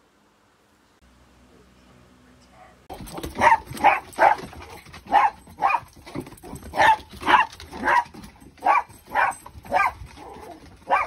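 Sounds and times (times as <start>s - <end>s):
dog barking: 3.2s - 11.0s.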